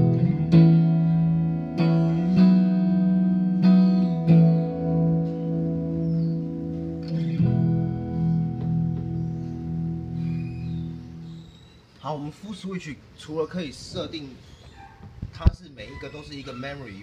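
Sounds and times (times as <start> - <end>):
clean electric guitar chords: 0.0 - 11.4.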